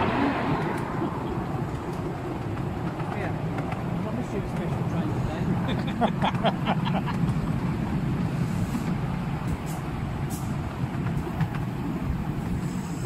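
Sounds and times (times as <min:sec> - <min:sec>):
train wheels rumbling on rails: 0:00.0 - 0:13.0
faint high steam hisses: 0:08.3 - 0:10.6, 0:12.4 - 0:13.0.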